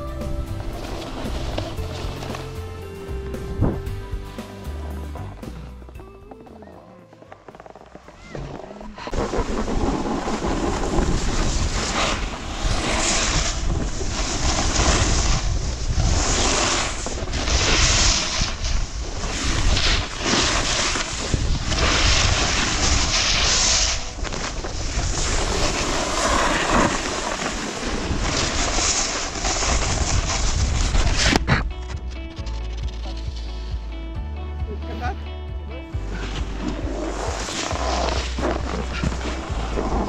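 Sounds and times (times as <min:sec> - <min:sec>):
snowboard edges scraping snow: 0:00.0 - 0:06.0, 0:06.6 - 0:33.9, 0:36.0 - 0:40.0
wind rushing over microphone: 0:08.9 - 0:31.9.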